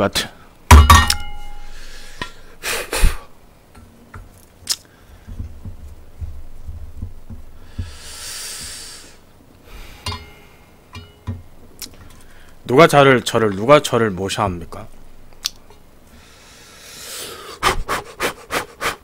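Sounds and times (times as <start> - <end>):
short hiss: 7.7 - 10.8
metal pot lid clinking: 10.0 - 11.4.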